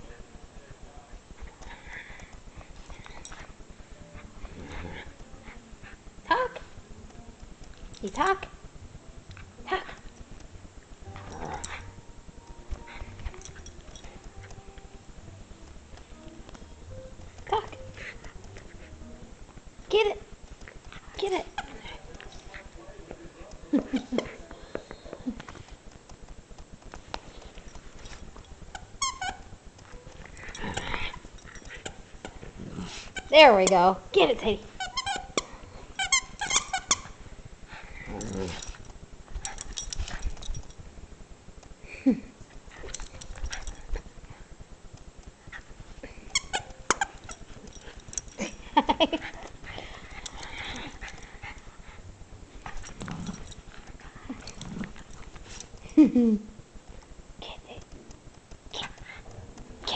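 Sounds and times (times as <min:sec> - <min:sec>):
dog growling: 0:04.2 - 0:05.6, 0:11.1 - 0:12.0, 0:30.3 - 0:33.2, 0:37.7 - 0:38.8, 0:47.6 - 0:52.0, 0:52.6 - 0:56.0
toy squeaks: 0:28.7 - 0:29.5, 0:33.2 - 0:35.4, 0:36.0 - 0:37.1, 0:46.3 - 0:47.4.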